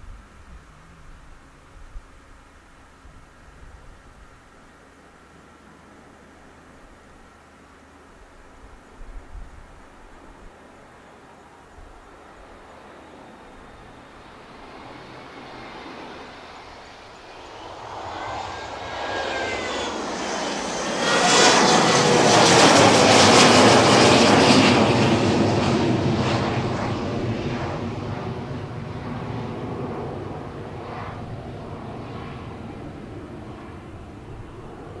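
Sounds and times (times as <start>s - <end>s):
jet roar overhead: 12.2s - 35.0s.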